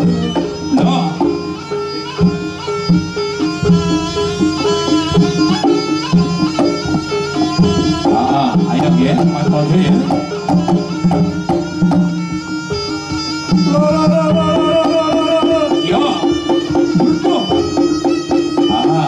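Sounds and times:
drum strokes: 0.0 - 19.0
reedy wind instrument melody: 0.0 - 19.0.

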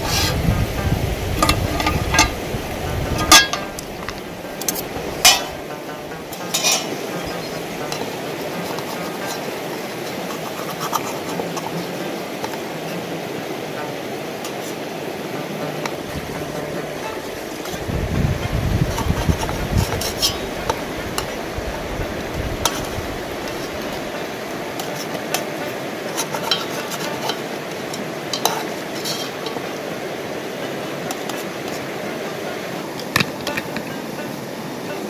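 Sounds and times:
metal spoon scraping a pot: 0.0 - 0.4, 1.4 - 2.4, 3.2 - 5.6, 6.3 - 12.6, 18.8 - 21.3, 22.6 - 29.8
steady rushing noise: 0.0 - 35.0.

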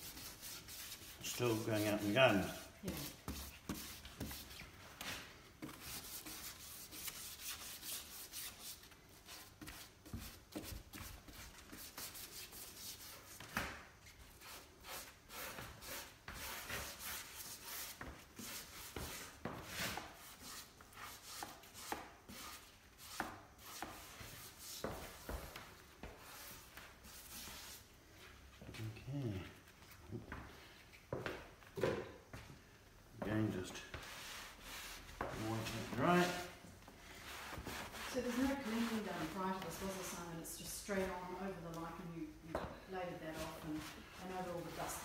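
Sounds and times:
hand brush scrubbing wood: 0.0 - 4.6, 5.6 - 13.4, 33.9 - 36.6, 37.2 - 40.3, 43.2 - 45.0.

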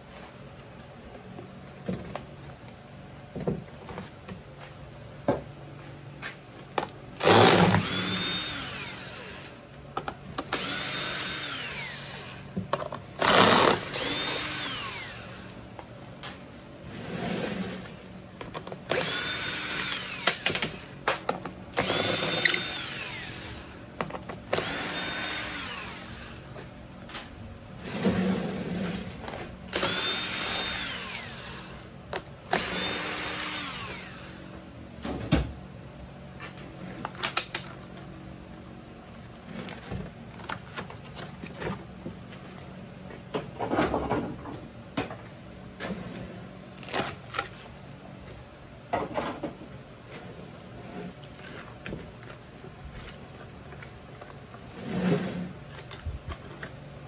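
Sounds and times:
cordless drill whining: 7.2 - 9.6, 10.5 - 12.5, 13.2 - 15.6, 18.9 - 21.0, 21.8 - 23.9, 24.5 - 26.5, 29.7 - 31.9, 32.5 - 34.4.

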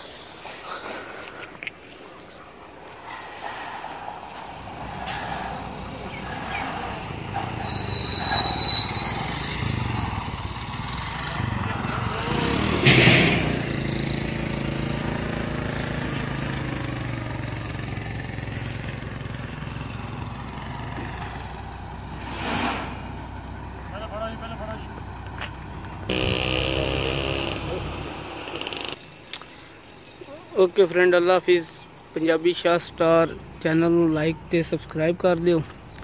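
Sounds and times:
motorcycle passing: 10.8 - 29.0
steady engine hum: 23.0 - 29.0.

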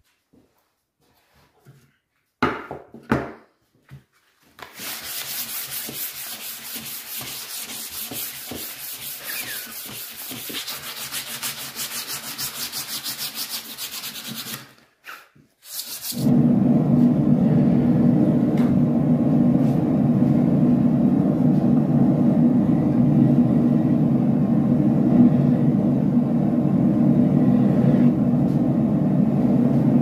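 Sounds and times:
sanding block rubbing wood: 4.7 - 16.3
gas forge running: 16.2 - 30.0.

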